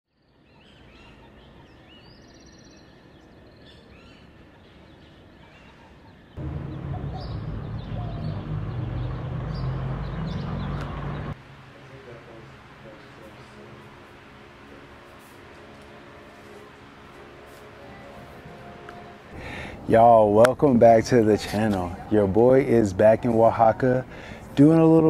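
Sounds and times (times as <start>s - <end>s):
birds chirping: 0.2s - 25.0s
quiet hiss: 11.3s - 21.4s.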